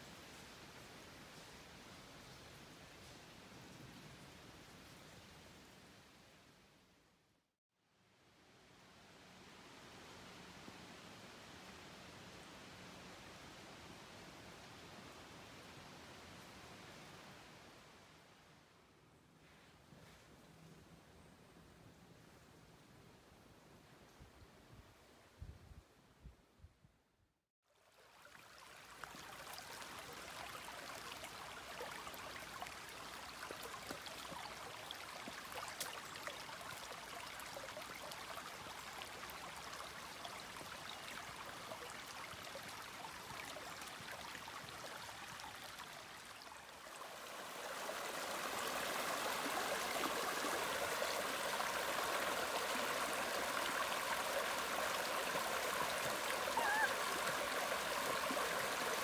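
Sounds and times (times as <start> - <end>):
stream rushing over rocks: 27.9 - 59.0.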